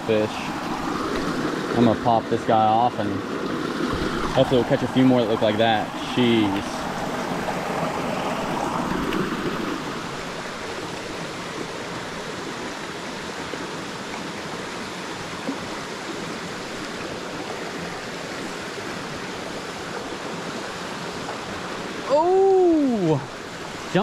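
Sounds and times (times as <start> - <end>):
creek rushing over stones: 0.0 - 24.0.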